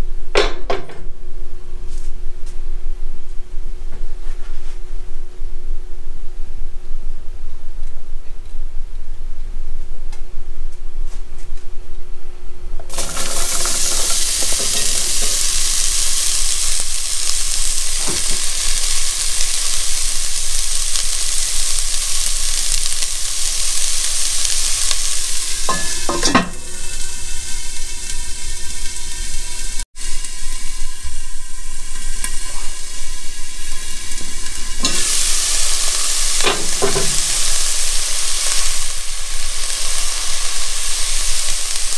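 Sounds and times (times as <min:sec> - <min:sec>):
onion sizzling in hot oil: 0:12.9 - 0:41.9.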